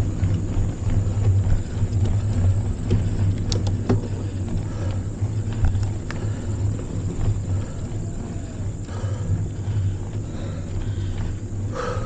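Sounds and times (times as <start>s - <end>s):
bike ticks and clatter: 0.0s - 12.0s
wind rumble on microphone: 0.0s - 12.0s.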